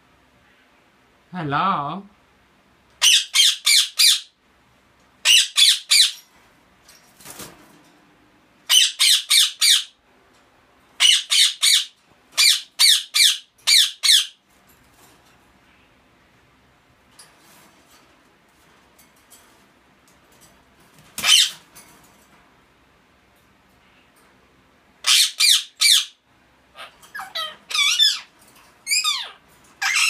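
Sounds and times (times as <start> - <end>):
parakeet screeching: 3.0 - 4.4, 5.2 - 6.2, 8.7 - 10.0, 11.0 - 14.4, 21.2 - 21.7, 25.0 - 30.0.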